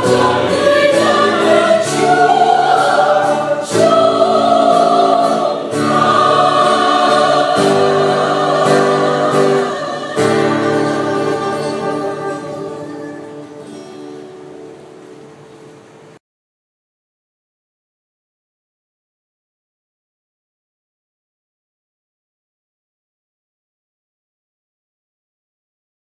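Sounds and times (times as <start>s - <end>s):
choir singing a hymn: 0.0s - 13.7s.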